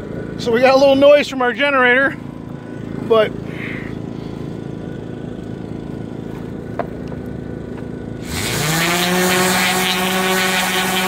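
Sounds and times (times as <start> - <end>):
generator engine hum: 0.0 - 11.0
orbital sander whine: 8.2 - 11.0.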